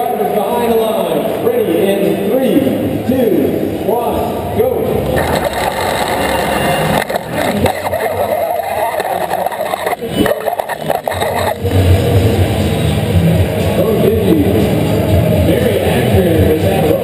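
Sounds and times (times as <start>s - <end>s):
crowd noise: 0.0s - 17.0s
music: 5.0s - 17.0s
robot motors running: 5.2s - 11.6s.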